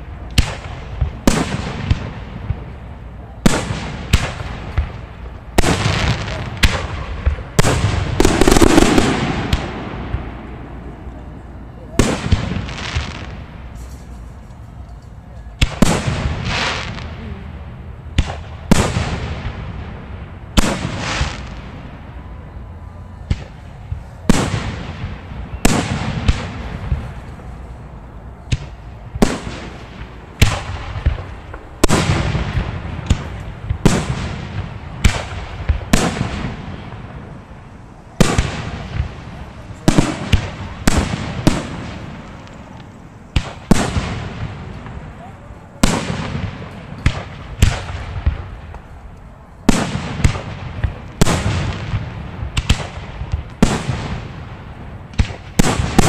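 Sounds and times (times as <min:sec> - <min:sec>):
firework shells bursting: 0:07.6 - 0:10.3.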